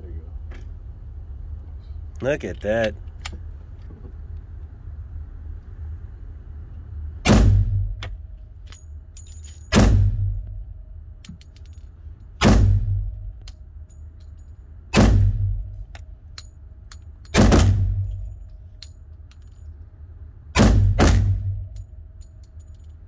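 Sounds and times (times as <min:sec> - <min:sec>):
steady low rumble: 0:00.0 - 0:23.0
gunshots echoing indoors: 0:07.2 - 0:08.0, 0:09.7 - 0:10.5, 0:14.9 - 0:15.7, 0:17.4 - 0:18.2, 0:20.6 - 0:21.7.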